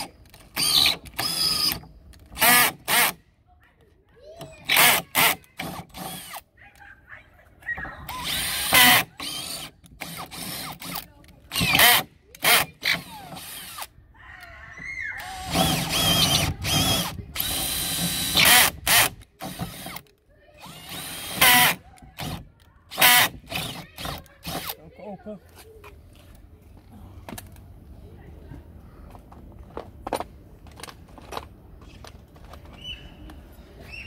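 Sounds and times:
cordless drill whining: 0.0s - 3.2s, 4.4s - 6.4s, 8.1s - 13.9s, 15.2s - 24.8s.

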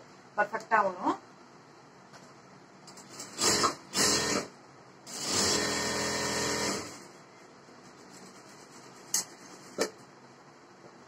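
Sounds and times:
electric sewing machine running: 3.1s - 4.5s, 5.1s - 7.1s.

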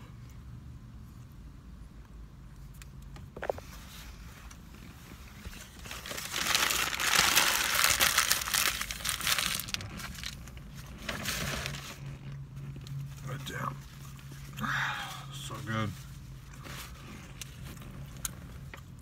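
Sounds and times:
paper wrapper crumpling: 5.6s - 10.4s.

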